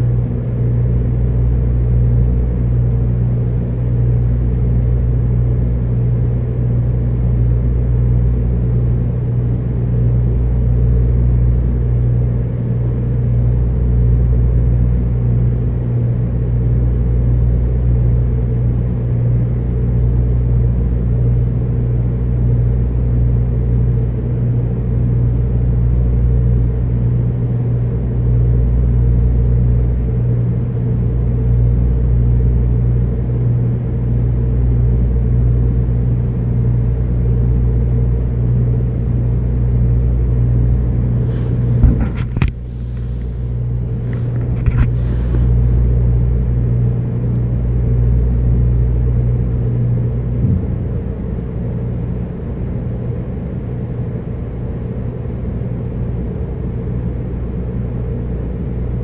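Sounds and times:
low machine hum: 0.0s - 59.0s
deep rumble: 48.8s - 52.8s.

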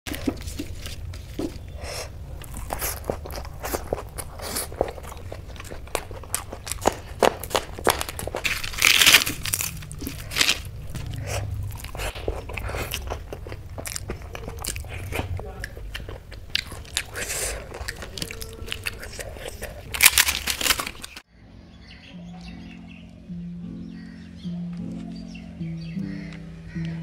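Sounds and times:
low steady hum: 0.1s - 21.8s
crunchy bites and chewing: 0.2s - 21.3s.

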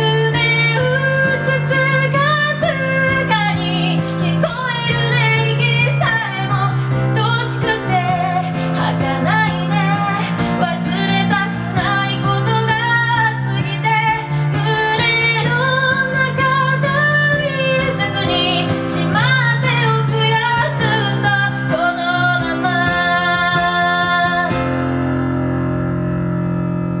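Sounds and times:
woman singing: 0.0s - 24.7s
piano: 0.0s - 27.0s.

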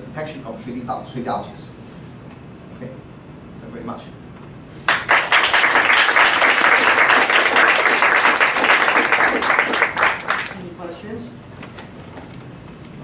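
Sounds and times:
audience applauding: 4.9s - 10.6s.

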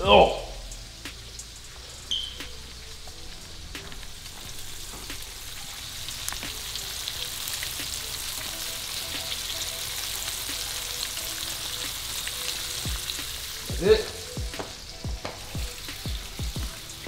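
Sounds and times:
meat sizzling in hot oil: 0.0s - 17.0s.

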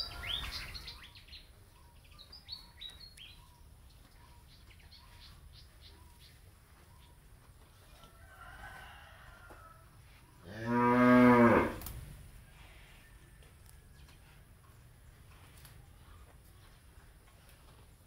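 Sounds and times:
cow mooing: 10.5s - 11.8s.

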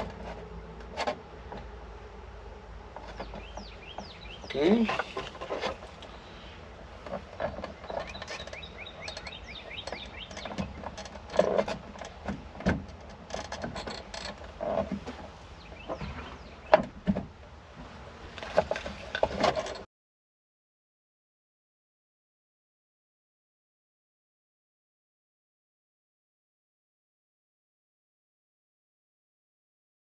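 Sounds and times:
birds chirping: 0.0s - 12.4s, 13.0s - 17.5s
hand tools clattering on metal: 3.0s - 6.1s.

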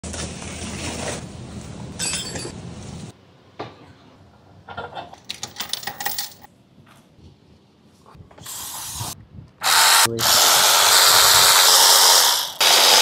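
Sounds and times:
metal tools clinking: 2.0s - 2.6s.

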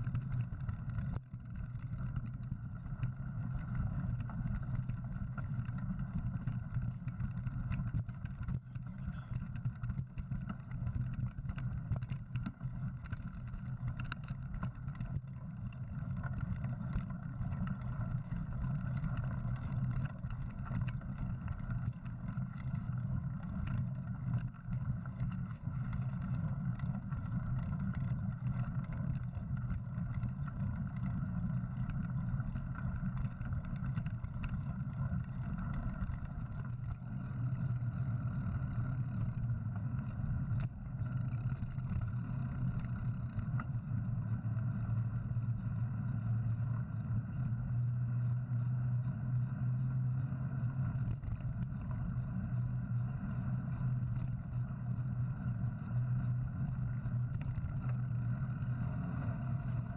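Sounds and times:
faint ticks: 0.0s - 59.9s
bike tyres on dirt trail: 12.8s - 59.9s.

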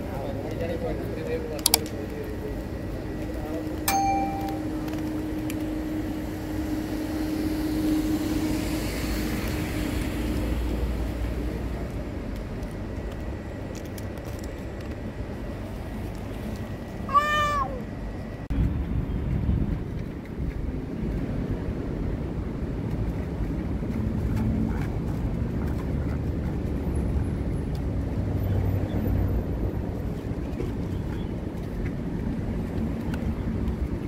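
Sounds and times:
low background hum: 0.0s - 21.3s
cat meowing: 17.1s - 17.9s.

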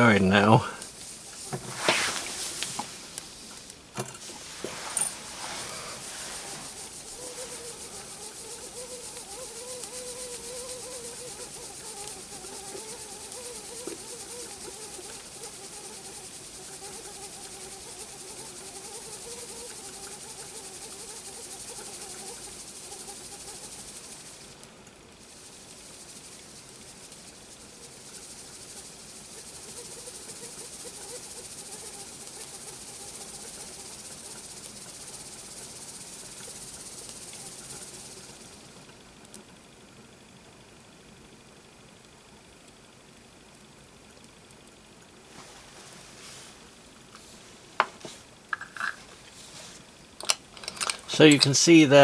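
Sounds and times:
steam hissing from jets: 0.0s - 18.2s, 50.9s - 52.0s.

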